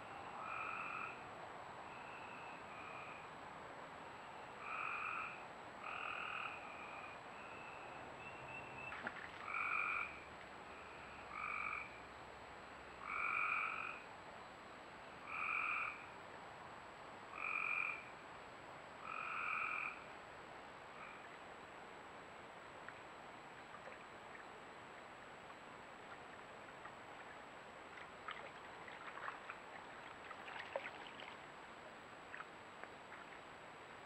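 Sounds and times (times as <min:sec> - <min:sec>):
faint frog calls: 0:00.0 - 0:03.4, 0:04.2 - 0:12.2, 0:12.8 - 0:14.1, 0:15.2 - 0:16.2, 0:17.3 - 0:18.2, 0:19.0 - 0:20.2, 0:20.9 - 0:21.5, 0:22.8 - 0:31.4, 0:32.1 - 0:33.6
frog calling: 0:00.1 - 0:01.2, 0:04.6 - 0:12.0, 0:13.0 - 0:14.0, 0:15.3 - 0:16.1, 0:17.3 - 0:18.1, 0:19.0 - 0:20.1, 0:21.0 - 0:21.3.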